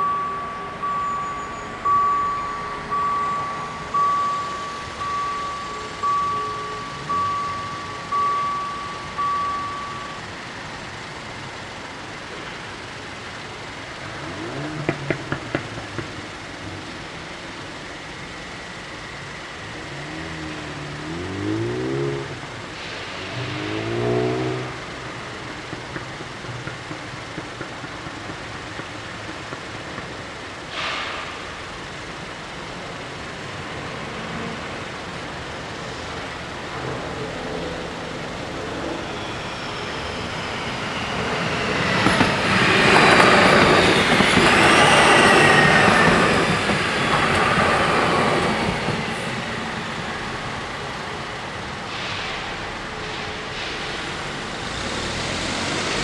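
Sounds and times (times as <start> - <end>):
crossing warning bell ringing: 0.0 - 54.8
vehicle engine: 0.0 - 56.0.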